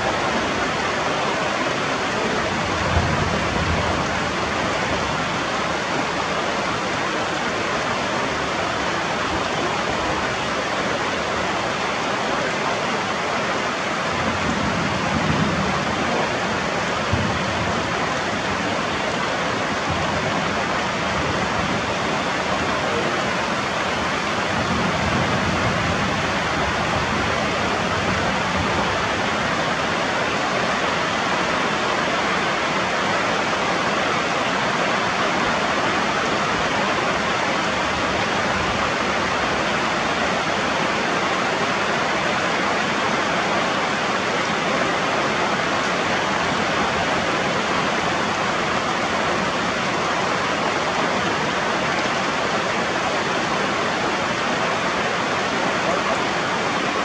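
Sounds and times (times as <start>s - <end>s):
heavy rain on leaves and rocks: 0.0s - 57.0s.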